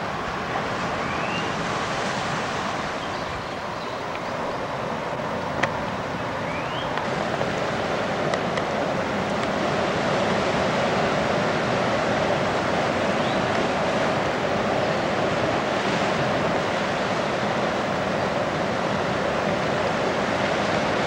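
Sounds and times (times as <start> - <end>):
surf washing over cobblestones: 0.0 - 21.0.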